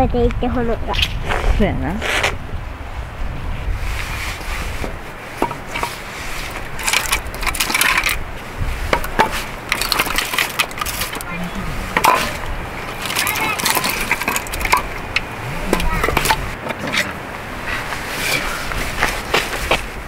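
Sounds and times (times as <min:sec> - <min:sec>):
firewood sticks knocking and scraping: 0:04.0 - 0:19.9.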